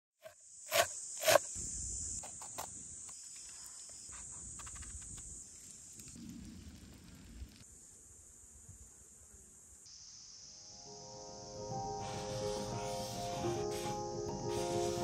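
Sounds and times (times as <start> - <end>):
insect drone: 0.2 - 15.0.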